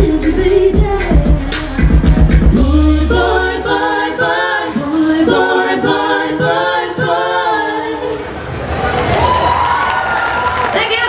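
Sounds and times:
voices singing in harmony: 0:00.0 - 0:08.5.

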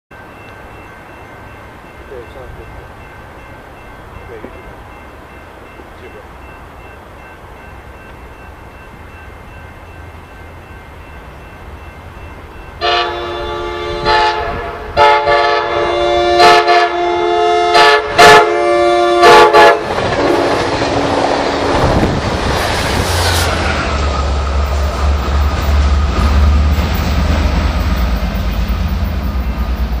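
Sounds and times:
diesel locomotive drone: 0:00.1 - 0:30.0
train passing rumble: 0:00.1 - 0:30.0
train horn blasts: 0:12.8 - 0:20.6.

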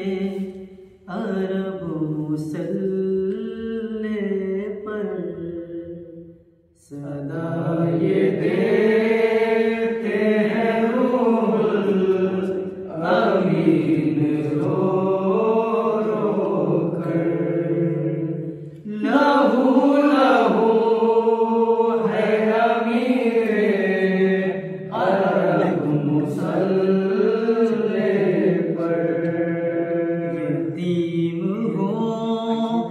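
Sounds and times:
men chanting a lament: 0:06.9 - 0:32.9.

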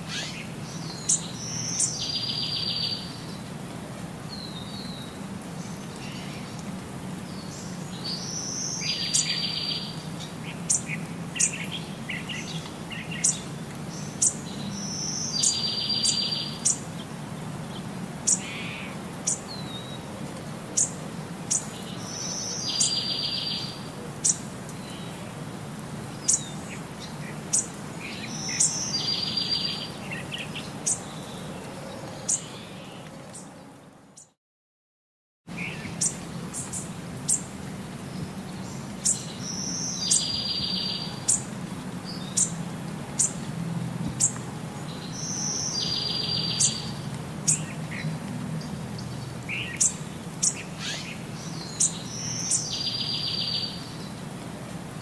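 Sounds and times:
birds chirping: 0:00.0 - 0:03.5, 0:07.2 - 0:20.0, 0:20.7 - 0:25.3, 0:26.1 - 0:34.4, 0:35.5 - 0:43.5, 0:44.1 - 0:54.3.

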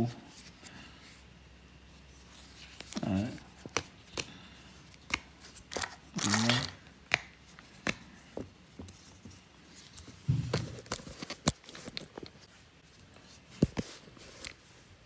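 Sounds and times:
dull bump on wooden floor: 0:10.3 - 0:10.7.

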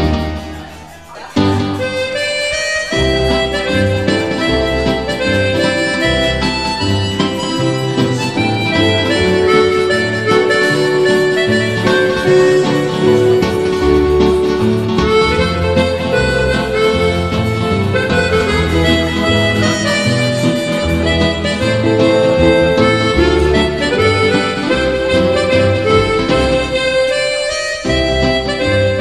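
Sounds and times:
instrumental music with walking bass: 0:00.0 - 0:29.0.

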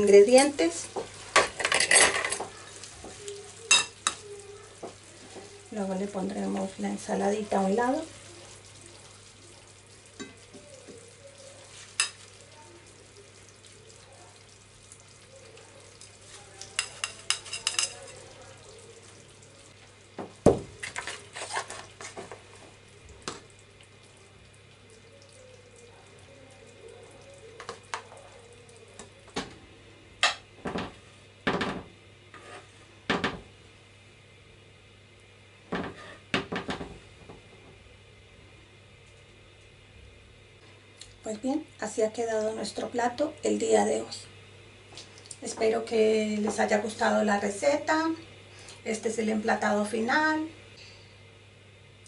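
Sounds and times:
faint steady hum: 0:00.0 - 0:52.0
spoon knocking in frying pan: 0:00.8 - 0:05.5, 0:10.1 - 0:11.1, 0:16.8 - 0:18.2.

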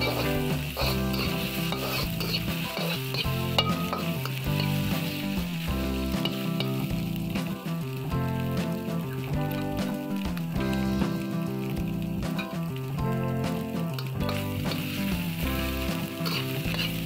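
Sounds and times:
metal spatula scraping wok: 0:00.0 - 0:06.9, 0:13.9 - 0:17.0
rice sizzling in wok: 0:00.0 - 0:17.0.

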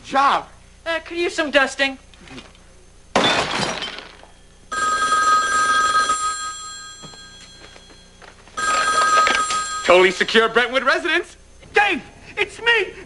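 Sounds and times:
telephone ringing: 0:04.7 - 0:10.9.

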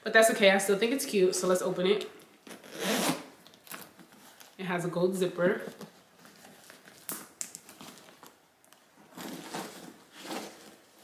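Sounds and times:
bag rustling: 0:09.0 - 0:11.0.

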